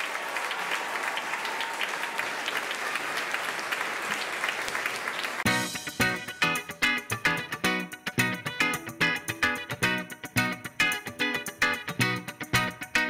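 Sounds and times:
audience applauding: 0.0s - 6.1s
music with strummed guitar: 5.5s - 13.0s.

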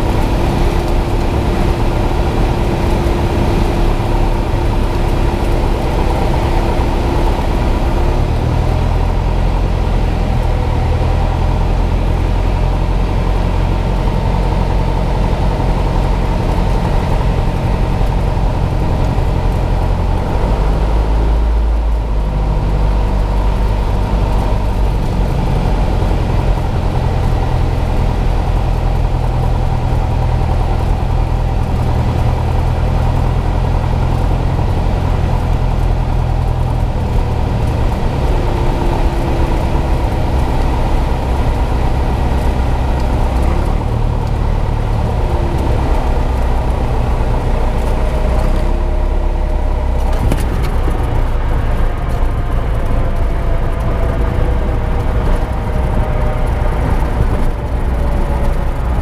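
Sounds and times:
airplane engine and propeller: 0.0s - 59.0s.

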